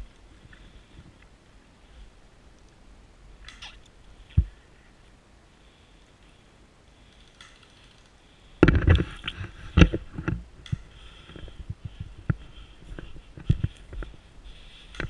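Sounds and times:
footsteps: 11.2 - 15.0.

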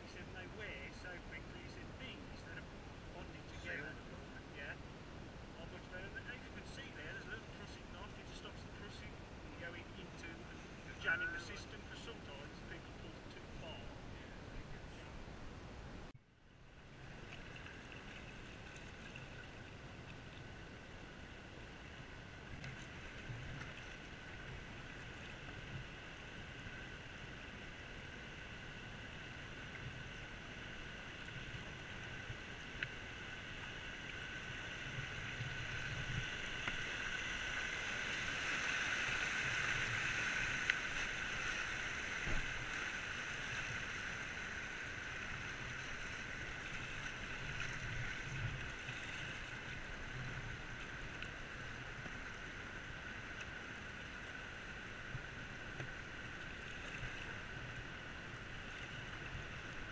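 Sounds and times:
river water rushing and splashing: 0.1 - 16.0, 16.8 - 59.9
faint clicks: 32.8 - 33.0.

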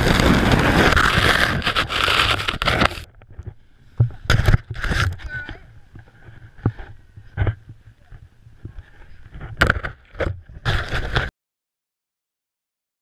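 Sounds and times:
snowboard scraping over snow: 0.0 - 3.1, 10.6 - 11.3
wind on microphone: 0.0 - 11.3.

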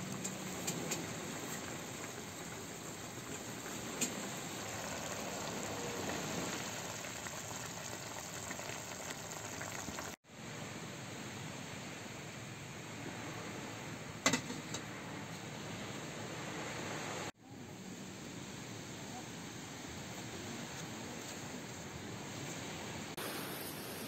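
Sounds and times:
food sizzling in a wok: 0.0 - 10.2, 23.2 - 24.0
gas stove burner hissing: 23.2 - 24.0.

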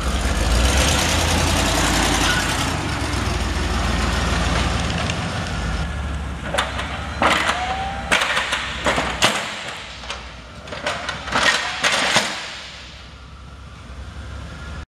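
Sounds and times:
engine rumbling at low speed: 0.0 - 14.9
sharp clicks and knocks: 6.4 - 13.1.

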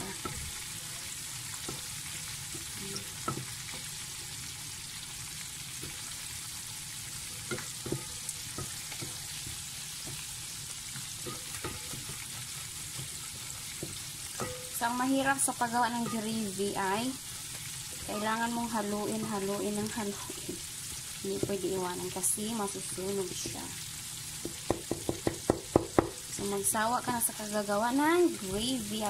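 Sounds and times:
roux sizzling in a metal pan: 0.0 - 29.0
spatula scraping pan: 7.2 - 14.8.

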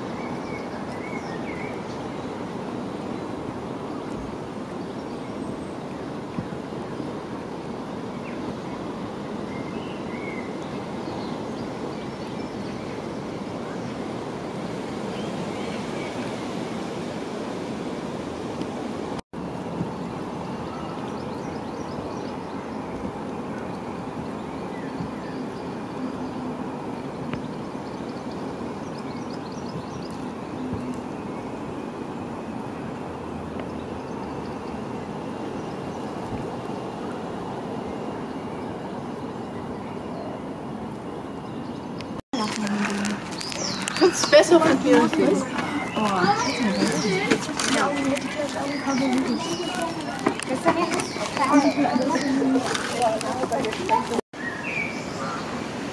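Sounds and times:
steady rushing background noise: 0.0 - 55.9.

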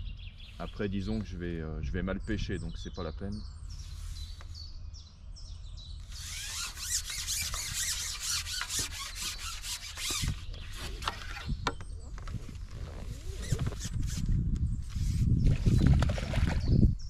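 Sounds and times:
small birds chirping: 0.0 - 17.0
rasping rubbing sound: 6.0 - 15.8.

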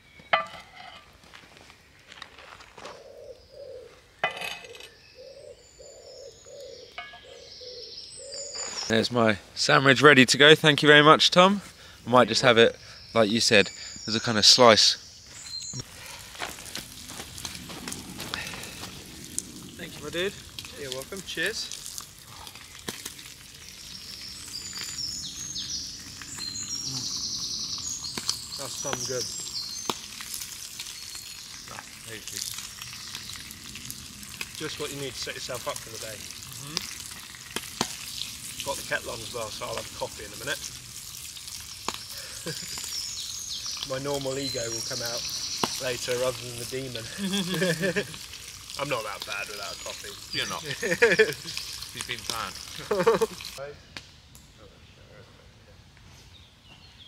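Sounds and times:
pigeon cooing: 2.8 - 8.4
songbird trilling: 4.6 - 8.9, 12.9 - 15.9, 23.6 - 30.0, 41.7 - 47.7
pancakes sizzling in a frying pan: 15.4 - 53.6.

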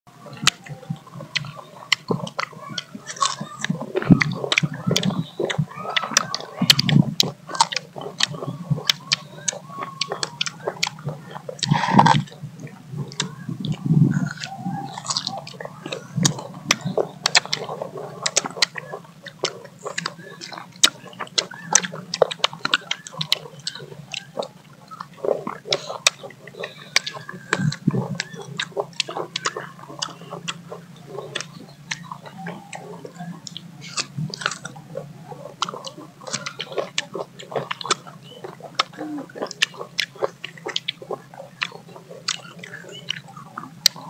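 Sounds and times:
people biting and chewing: 0.1 - 44.0.

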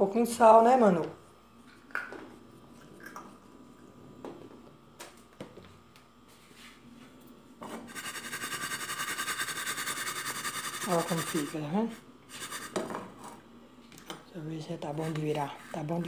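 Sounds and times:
rhythmic rasping pan scrape: 7.9 - 11.6.

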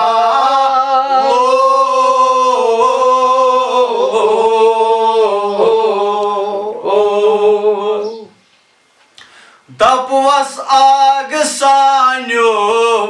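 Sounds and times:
man chanting in held notes: 9.7 - 13.0.

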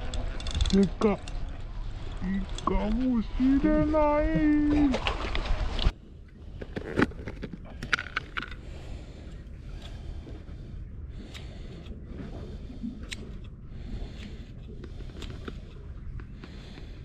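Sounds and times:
steady low rumble: 0.0 - 17.0
plastic tackle case clicks and rattles: 6.6 - 8.6.

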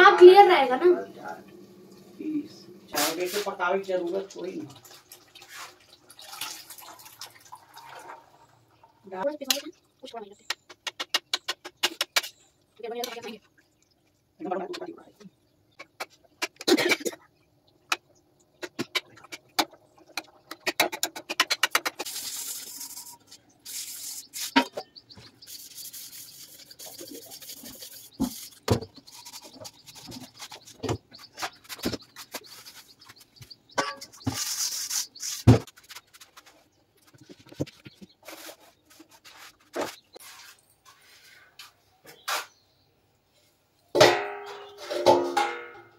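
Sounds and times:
pot being scrubbed: 4.8 - 7.1, 21.4 - 36.5.

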